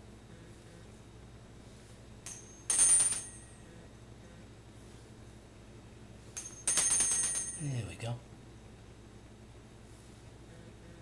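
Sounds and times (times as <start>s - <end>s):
small metal bell ringing: 2.2s - 3.7s, 6.4s - 8.0s.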